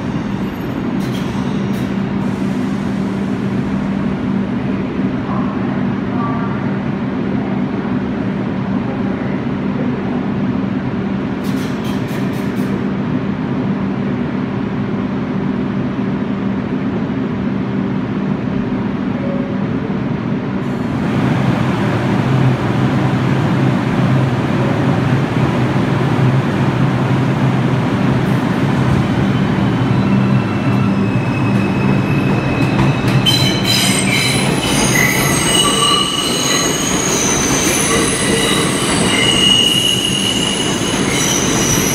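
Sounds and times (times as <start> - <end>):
subway train hum: 0.0 - 41.9
train rumble: 0.0 - 41.9
wheel squeal: 29.3 - 41.9.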